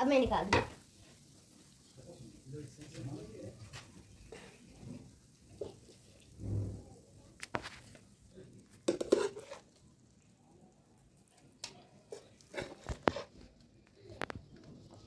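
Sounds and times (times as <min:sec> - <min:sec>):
steel spoon scraping a frying pan: 0:08.8 - 0:09.8, 0:12.1 - 0:13.4.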